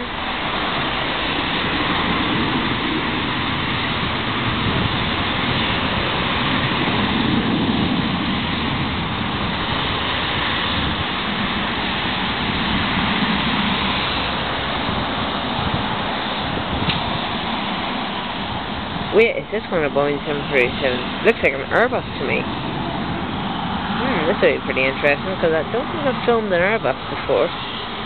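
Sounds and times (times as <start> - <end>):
cars passing: 0.0 - 28.0
jet engine noise: 0.0 - 28.0.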